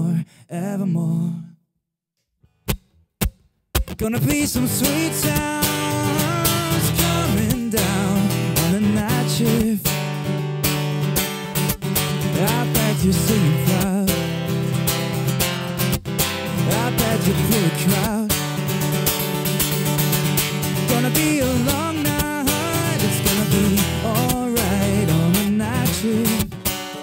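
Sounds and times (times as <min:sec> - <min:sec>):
man singing: 0:00.0 - 0:01.6, 0:03.9 - 0:10.0, 0:12.2 - 0:14.7, 0:16.4 - 0:18.6, 0:20.6 - 0:27.0
acoustic guitar strumming: 0:02.7 - 0:27.0.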